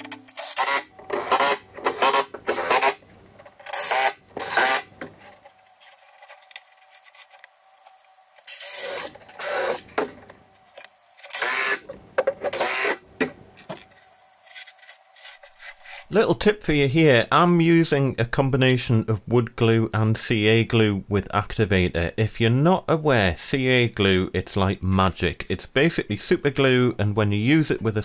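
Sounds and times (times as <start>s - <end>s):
cordless drill boring into wood: 0.4s - 3.0s, 3.7s - 4.8s, 8.5s - 9.9s, 11.3s - 11.8s, 12.5s - 13.0s.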